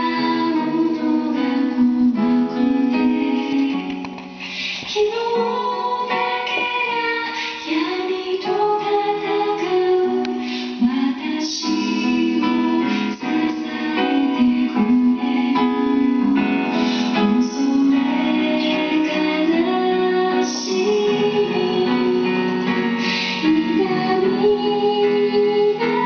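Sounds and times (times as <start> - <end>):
guitar: 0.0 - 26.0
piano: 0.0 - 26.0
woman singing slow melody: 0.0 - 26.0.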